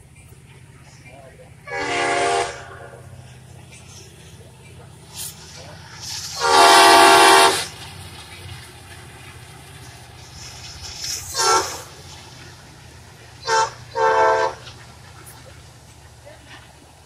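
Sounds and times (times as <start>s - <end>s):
train horn blowing: 1.6s - 3.1s, 6.3s - 7.8s, 11.3s - 12.0s, 13.4s - 14.8s.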